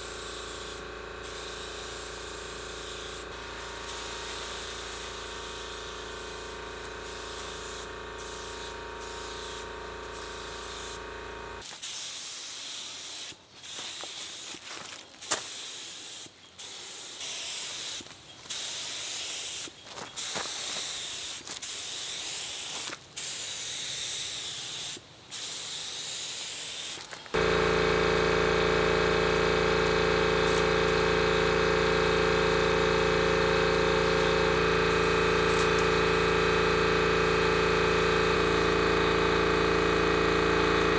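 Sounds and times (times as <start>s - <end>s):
air compressor motor drone: 0.0s - 11.6s, 27.3s - 40.9s
paint spray gun hissing: 0.0s - 40.9s.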